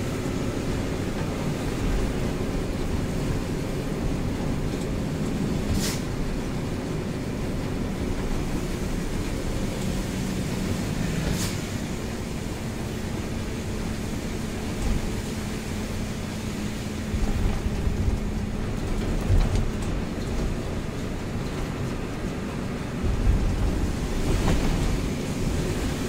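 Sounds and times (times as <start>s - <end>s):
rain: 0.0s - 26.0s
truck engine hum: 0.0s - 26.0s
tyres hissing on wet road: 0.0s - 26.0s
low rumbles: 11.8s - 26.0s.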